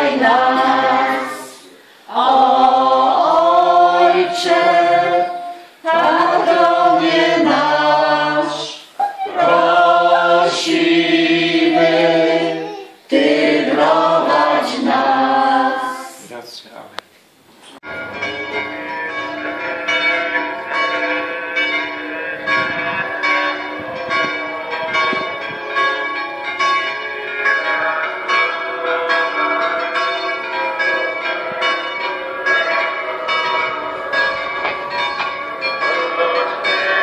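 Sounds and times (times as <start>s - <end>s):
church bells ringing: 3.5s - 8.7s, 17.9s - 37.0s.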